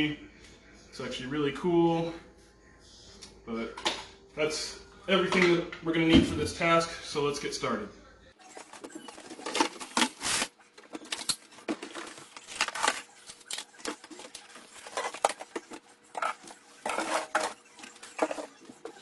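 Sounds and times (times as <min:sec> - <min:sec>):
plastic bottles clunking and rattling: 0:08.6 - 0:19.0.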